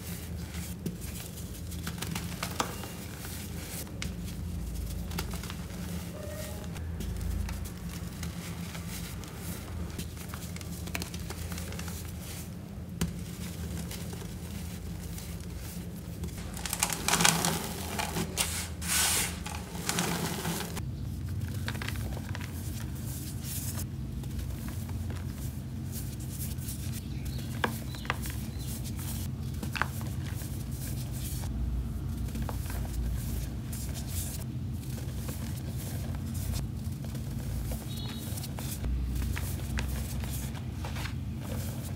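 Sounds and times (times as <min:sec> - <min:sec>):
steady low hum: 0:00.0 - 0:41.9
small cracks: 0:16.2 - 0:18.5.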